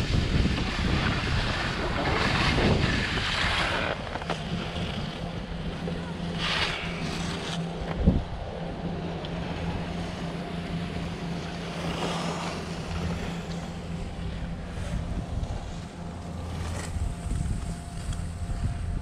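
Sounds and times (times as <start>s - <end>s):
skis scraping on packed snow: 0.0s - 5.2s, 6.3s - 7.6s, 11.7s - 18.3s
wind buffeting microphone: 0.0s - 9.0s, 12.7s - 19.0s.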